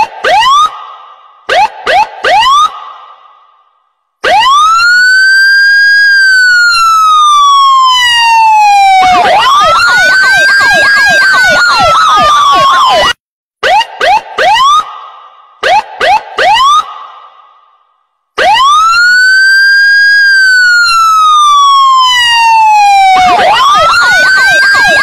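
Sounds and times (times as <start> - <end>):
siren yelp: 0.0 - 0.8, 1.5 - 2.9, 4.2 - 15.0, 15.6 - 17.1, 18.4 - 25.0
electronic siren wailing: 4.2 - 14.9, 18.4 - 25.0
short rising siren whoops: 4.2 - 14.9, 18.4 - 25.0.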